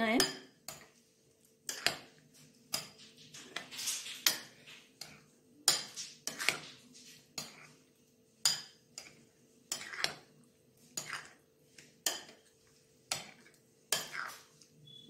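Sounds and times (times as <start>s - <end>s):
metal spoon clinking glass bowl: 2.7s - 6.8s, 8.4s - 10.3s, 13.1s - 15.0s.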